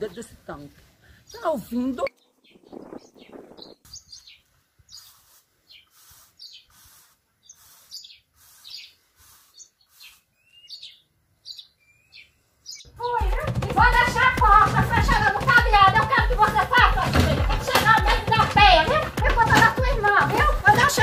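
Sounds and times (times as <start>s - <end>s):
small birds chirping: 0.0s - 13.3s.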